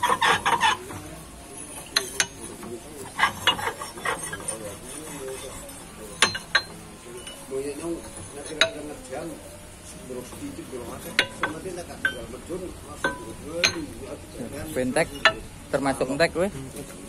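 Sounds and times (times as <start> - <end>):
steel hammers clinking and clanking: 0.0 - 9.2, 10.1 - 12.4, 13.0 - 14.1, 14.8 - 15.6.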